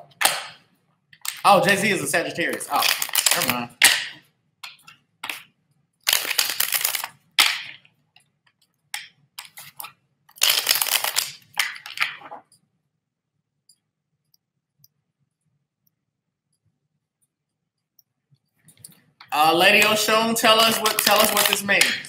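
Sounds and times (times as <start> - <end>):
cards being shuffled: 2.5 - 4.1, 4.7 - 7.8, 9.4 - 12.5, 19.4 - 22.0.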